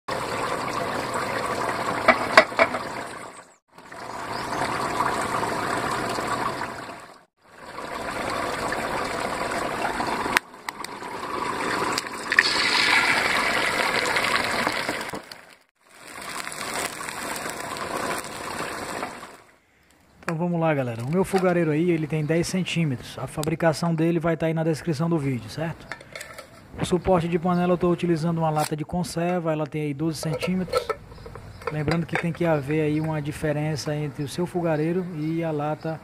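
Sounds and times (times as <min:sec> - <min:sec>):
egg sizzling in a pan: 0:10.8 - 0:19.4.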